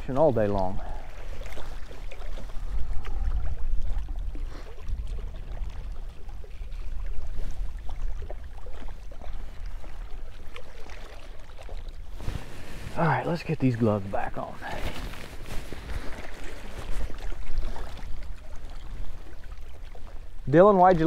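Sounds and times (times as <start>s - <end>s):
water lapping rocky shore: 0.0s - 21.0s
wind buffeting microphone: 1.6s - 10.3s.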